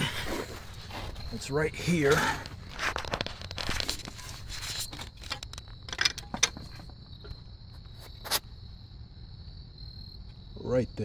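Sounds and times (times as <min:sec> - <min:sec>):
crickets chirping: 0:00.0 - 0:11.0
sharp clicks and knocks: 0:04.8 - 0:07.4.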